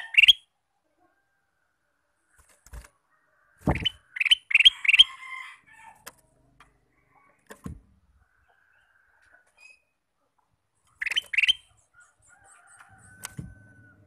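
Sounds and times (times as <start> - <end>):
soft bird calls: 0.0 - 0.5, 2.2 - 5.2, 6.0 - 14.0
dull thump: 3.6 - 4.0, 7.5 - 7.9
bird singing whistled notes: 11.0 - 11.7.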